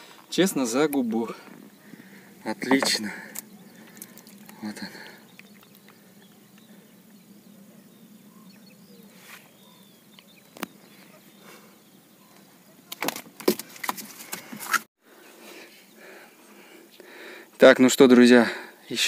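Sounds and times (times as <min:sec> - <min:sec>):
knocks and rustles of fish handling: 0:12.9 - 0:14.9.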